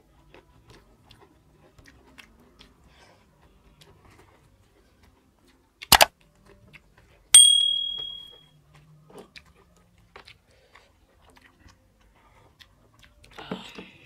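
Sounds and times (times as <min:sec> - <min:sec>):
chewing and eating: 0:00.0 - 0:07.3, 0:08.6 - 0:14.0
notification bell ding: 0:07.4 - 0:08.4.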